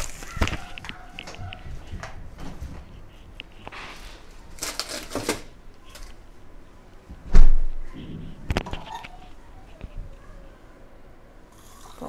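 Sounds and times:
rustling and scraping: 0.0s - 6.3s, 7.1s - 10.6s
loud thump: 7.1s - 8.4s.

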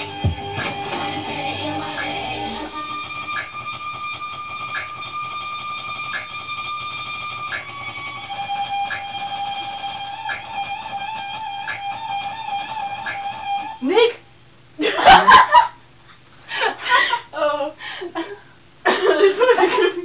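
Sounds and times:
soft beat: 0.0s - 12.4s.

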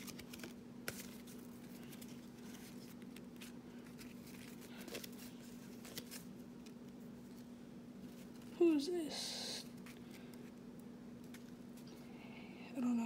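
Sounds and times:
trading cards flipped by hand: 0.0s - 8.5s, 11.2s - 12.0s
steady low hum: 0.0s - 13.0s.

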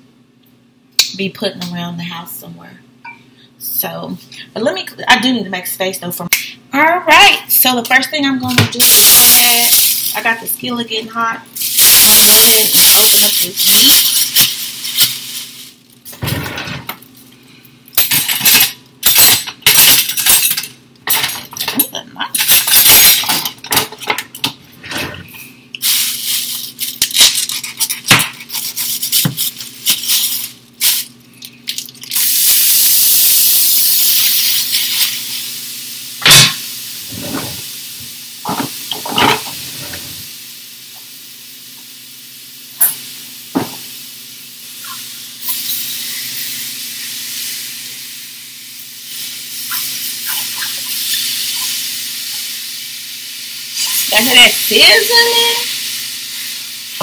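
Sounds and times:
meat sizzling in skillet: 11.6s - 15.8s, 32.1s - 37.0s, 40.3s - 57.0s.

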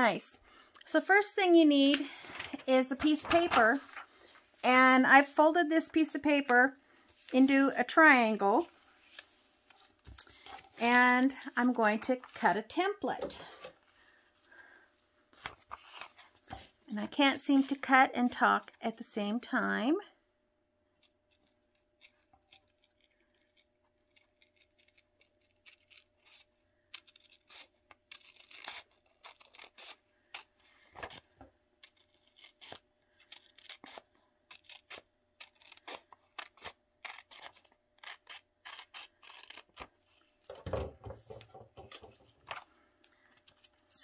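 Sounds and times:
paper rustling: 2.1s - 4.4s, 8.6s - 12.6s, 15.3s - 16.8s
scissors snipping paper: 21.0s - 40.2s.

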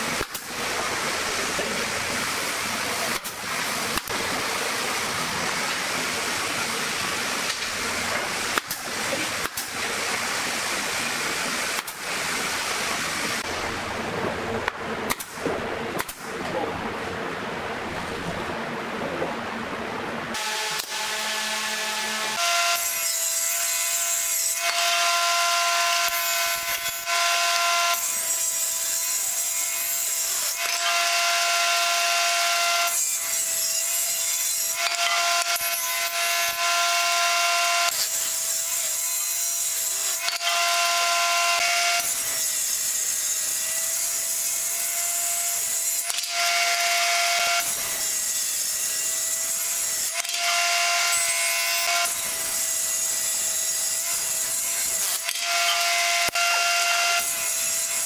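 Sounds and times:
table saw cutting wood: 0.0s - 13.6s, 20.3s - 58.0s
saw blade whine: 20.4s - 58.0s.

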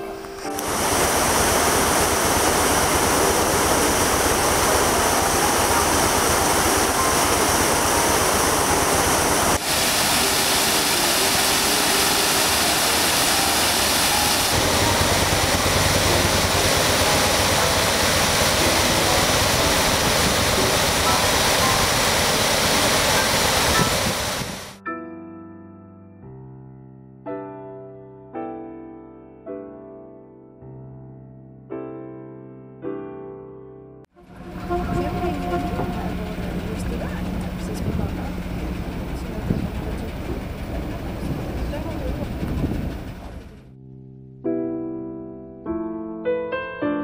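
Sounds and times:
water rushing through lock gate: 0.4s - 24.8s, 34.2s - 43.6s
deep rumble: 34.3s - 43.7s.

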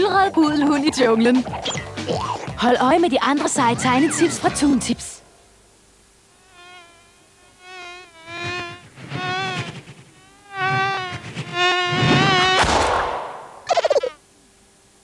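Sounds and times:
cartoon fly buzzing: 6.3s - 14.2s.

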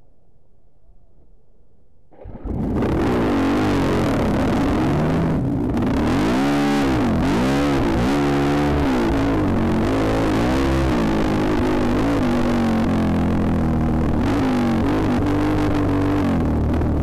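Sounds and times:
dirt bike engines revving: 2.2s - 17.0s.

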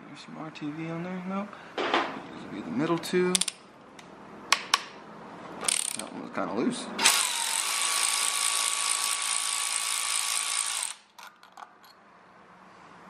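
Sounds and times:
power ratchet motor whine: 5.6s - 6.0s, 7.0s - 11.1s.

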